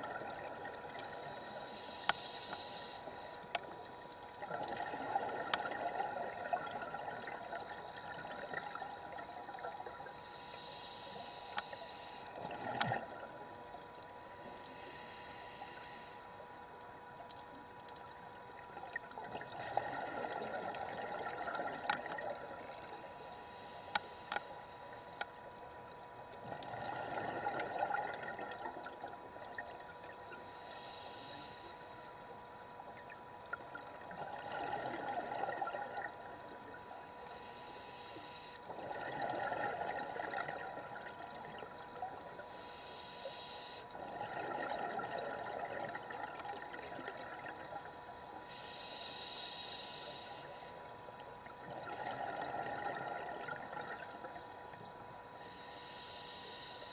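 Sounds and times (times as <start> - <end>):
exhaled bubbles gurgling: 0.0 - 1.7, 4.4 - 10.0, 18.6 - 22.6, 26.4 - 30.2, 33.2 - 36.6, 38.7 - 42.3, 44.0 - 47.9, 51.4 - 54.8
faint steady tone: 0.0 - 56.9
regulator inhale hiss: 0.7 - 16.9, 19.8 - 29.2, 30.0 - 33.0, 34.2 - 44.7, 46.4 - 56.9.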